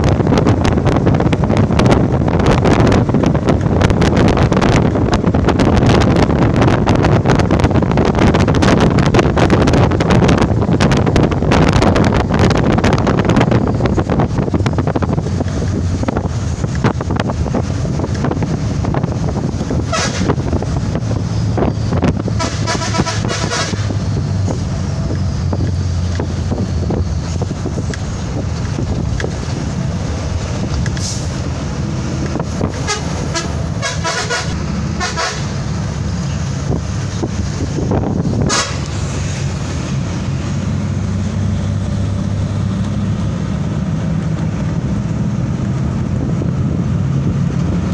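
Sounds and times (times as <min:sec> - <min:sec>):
vehicle engine and road rumble: 0:00.0 - 0:47.9
vehicle horns tooting: 0:19.9 - 0:20.4, 0:22.4 - 0:24.0, 0:32.6 - 0:35.6, 0:38.4 - 0:38.9.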